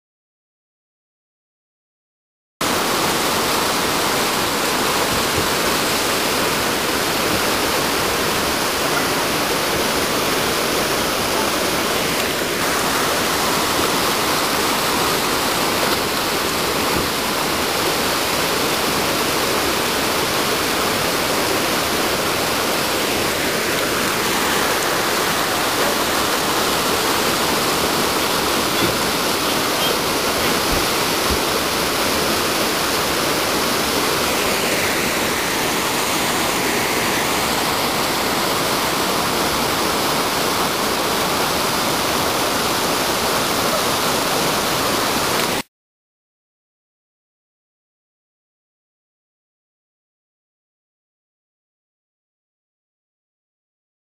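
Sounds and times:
river rapids roaring over rocks: 0:02.6 - 0:45.6.

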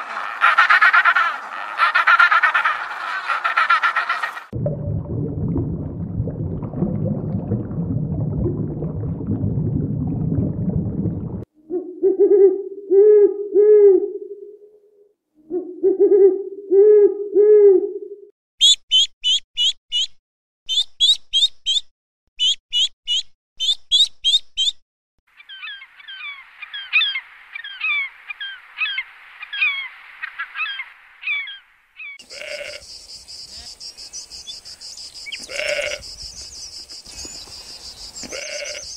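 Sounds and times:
duckling peeps: 0:18.6 - 0:24.8
chorus of chirping: 0:31.3 - 0:38.9
goat bleating: 0:32.3 - 0:32.8, 0:35.4 - 0:36.0, 0:38.2 - 0:38.8.

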